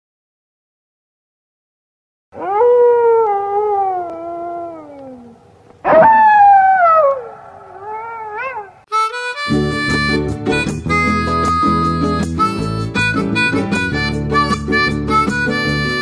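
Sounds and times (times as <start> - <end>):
wolf howling: 2.4 - 8.9
harmonica and acoustic guitar music: 8.9 - 16.0.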